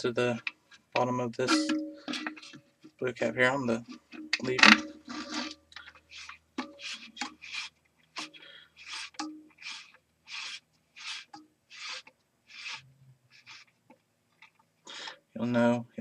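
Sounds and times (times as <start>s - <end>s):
rod scraping as screwed in: 0.3s - 2.6s, 3.7s - 13.8s.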